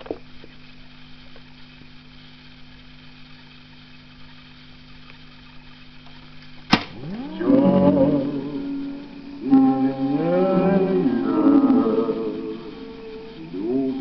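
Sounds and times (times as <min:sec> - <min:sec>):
tape recorder hum and hiss: 0:00.0 - 0:14.0
music from tape: 0:07.5 - 0:14.0.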